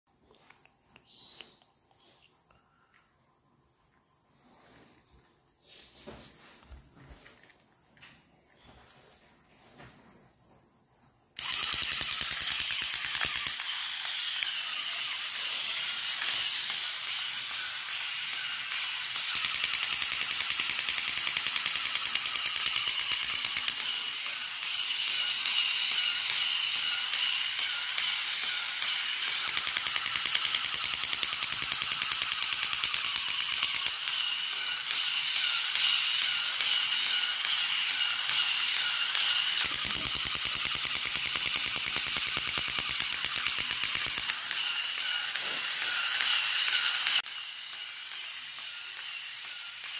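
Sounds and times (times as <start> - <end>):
toy gear motor ratcheting clatter: 11.4 - 49.9.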